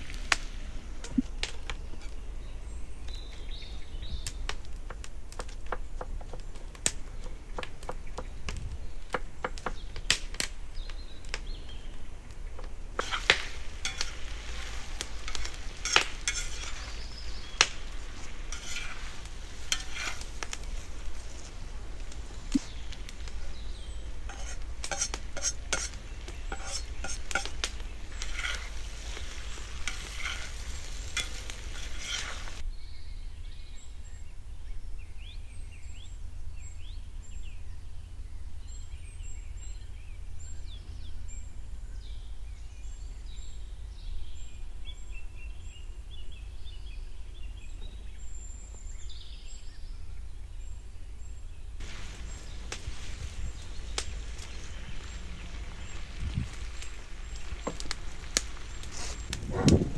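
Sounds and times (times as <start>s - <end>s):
meat and vegetables sizzling: 0.0s - 2.2s, 12.5s - 32.6s, 51.8s - 59.9s
metal utensil clinking on pan: 13.8s - 14.2s, 15.3s - 16.9s, 24.3s - 27.6s.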